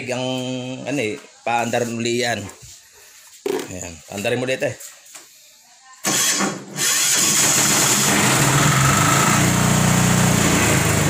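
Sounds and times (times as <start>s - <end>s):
generator engine starting and running: 6.1s - 11.0s.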